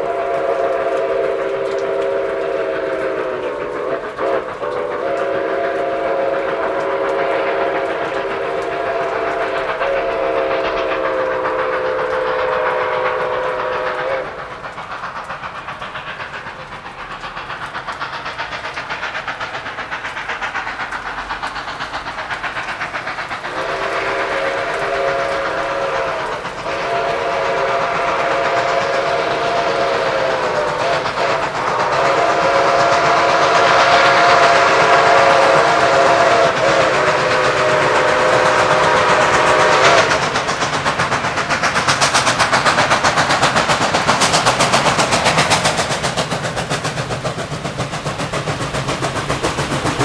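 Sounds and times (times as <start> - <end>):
chime steam whistle blowing: 0.0 - 14.7, 23.4 - 40.6
train running noise: 0.0 - 50.0.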